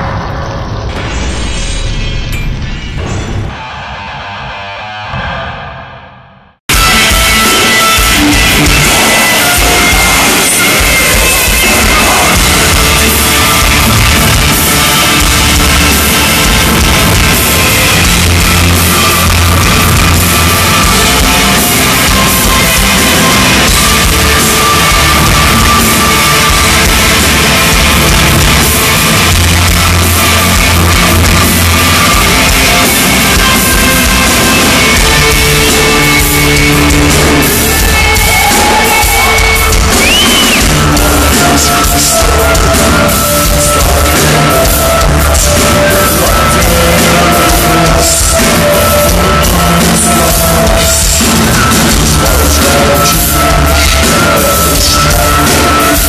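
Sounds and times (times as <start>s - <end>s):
distorted guitars: 0.0s - 56.0s
drum kit: 0.9s - 56.0s
person singing vocals: 6.8s - 14.0s, 32.4s - 56.0s.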